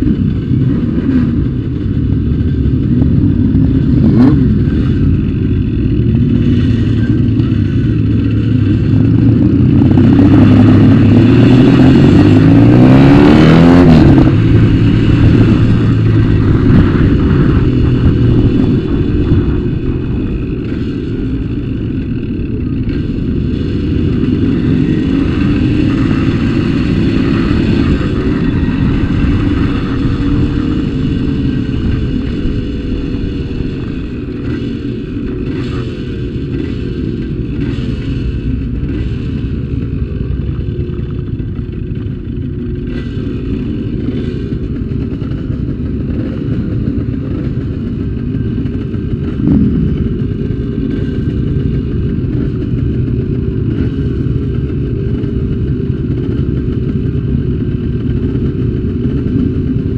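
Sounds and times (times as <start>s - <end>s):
wind rumble on microphone: 0.0s - 36.6s, 43.7s - 59.9s
motorcycle engine running: 0.0s - 59.9s.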